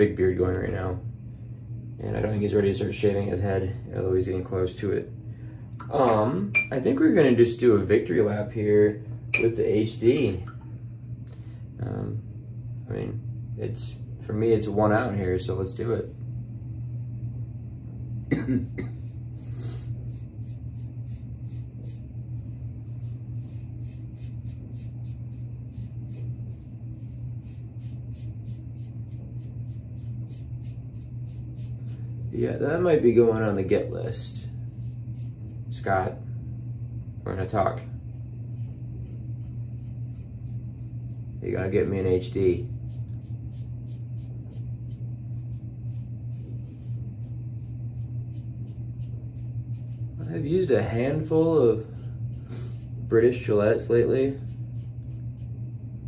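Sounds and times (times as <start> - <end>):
low hum: 0.0 - 56.0
razor scraping stubble: 18.1 - 36.0, 38.4 - 55.6.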